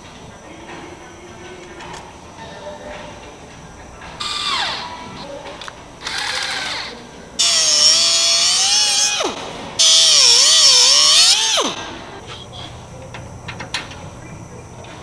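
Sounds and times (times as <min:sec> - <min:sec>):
angle grinder cutting steel: 0:06.0 - 0:11.9.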